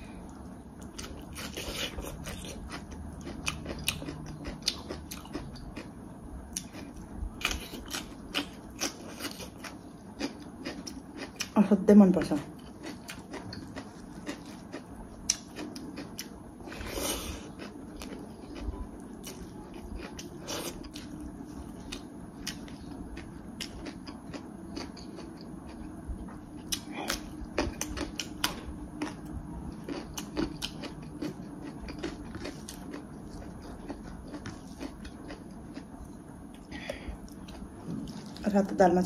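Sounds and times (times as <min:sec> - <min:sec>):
faint low hum: 0:00.0 - 0:39.0
biting and chewing: 0:26.7 - 0:36.7.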